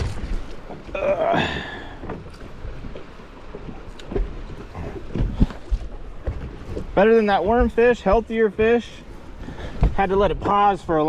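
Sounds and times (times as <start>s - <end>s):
dull knocks on boat: 3.6s - 10.6s.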